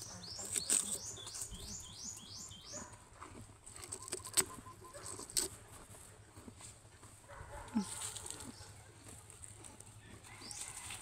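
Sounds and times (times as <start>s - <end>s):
calf chewing: 0.0s - 1.9s, 2.7s - 11.0s
rustling in dry leaves: 0.0s - 2.0s, 7.6s - 11.0s.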